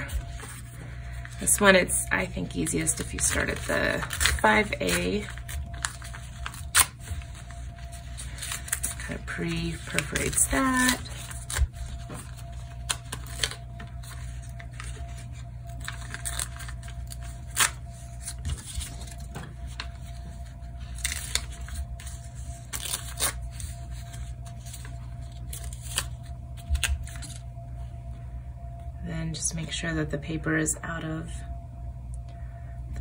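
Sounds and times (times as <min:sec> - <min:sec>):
paper tearing: 0:02.9 - 0:12.0, 0:20.9 - 0:27.4.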